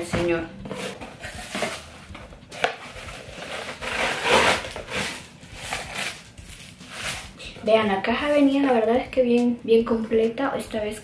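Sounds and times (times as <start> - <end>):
plastic bag rustling: 0.7 - 7.6.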